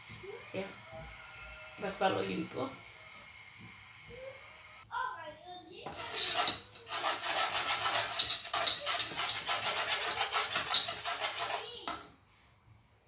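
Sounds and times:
wire whisk scraping metal saucepan: 5.9 - 12.1.

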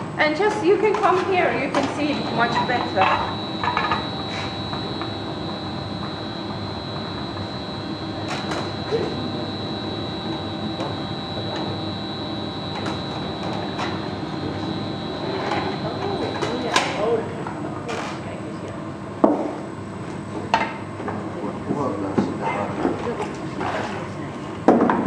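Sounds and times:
gas burner and blower running: 0.0 - 18.8
constant high whine: 0.0 - 22.3.

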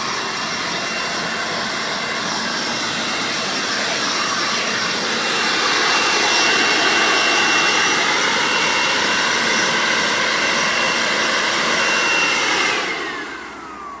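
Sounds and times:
leaf blower whining: 0.0 - 14.0
motor winding down: 0.0 - 14.0.

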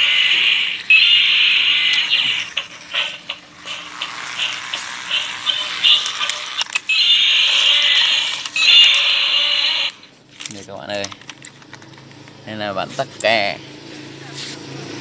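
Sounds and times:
toy electronic music and squeals: 0.0 - 10.1
toy clicks: 0.6 - 12.0.

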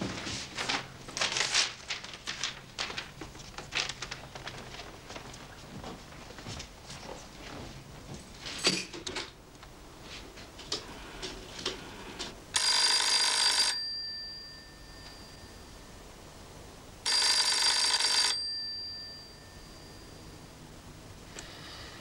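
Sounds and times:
telephone bell ringing: 12.6 - 16.0, 17.0 - 20.5.

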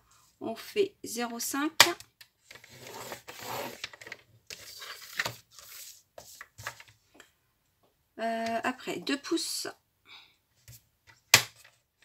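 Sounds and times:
paper scraping: 2.6 - 3.9, 4.5 - 6.8.

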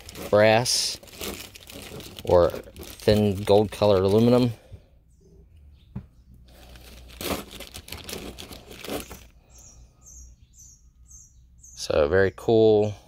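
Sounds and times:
plastic bag crinkling: 0.0 - 4.5, 6.5 - 9.3
bird chirping faintly: 8.7 - 13.0.

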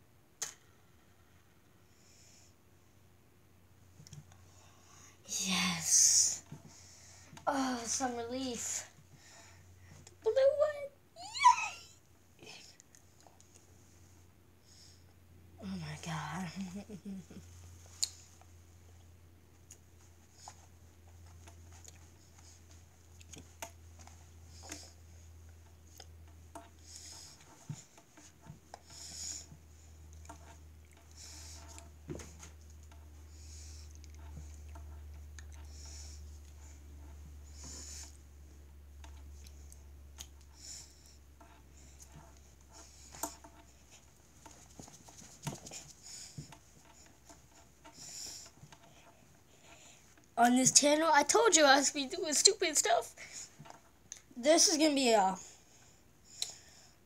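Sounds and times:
low steady hum: 0.0 - 57.0
thumps taps and rustling: 41.4 - 49.4.

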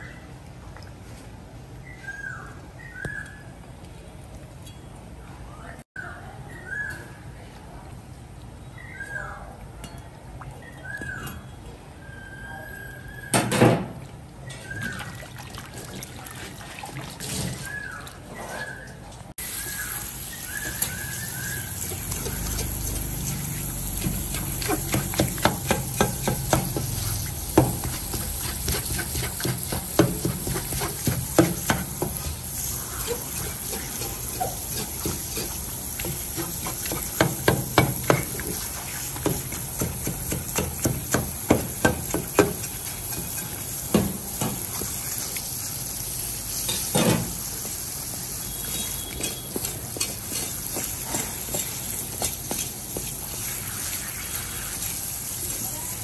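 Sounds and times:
faucet spray on fish: 19.4 - 56.0.

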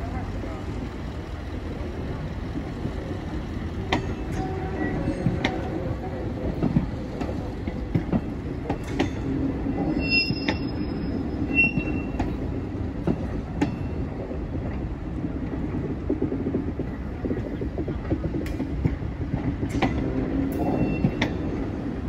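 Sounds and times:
train wheels clicking over joints: 1.2 - 22.0
wheel squeals: 9.5 - 12.3, 20.6 - 21.6.

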